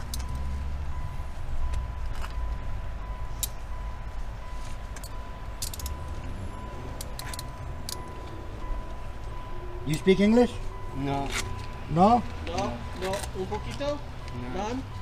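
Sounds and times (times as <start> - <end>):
handcuffs ratcheting clicks: 0.0 - 0.4, 5.0 - 6.0, 7.0 - 8.4.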